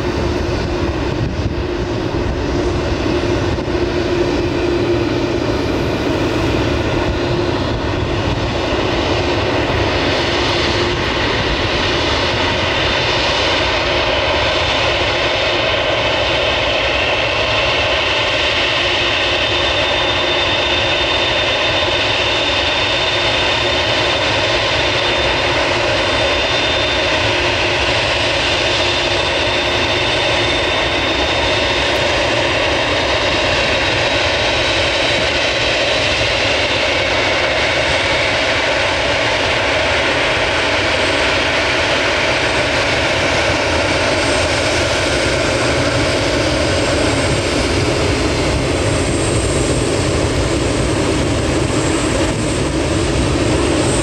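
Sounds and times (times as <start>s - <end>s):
jet engines running: 0.0s - 54.0s
high fan whine: 23.0s - 34.6s.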